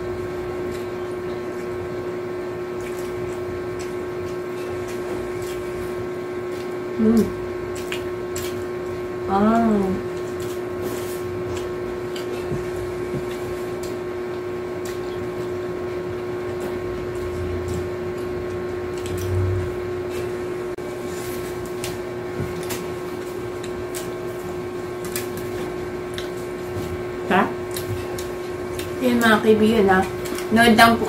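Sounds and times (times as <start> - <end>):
appliance motor hum: 0.0 - 31.0
crunching of people eating: 0.1 - 31.0.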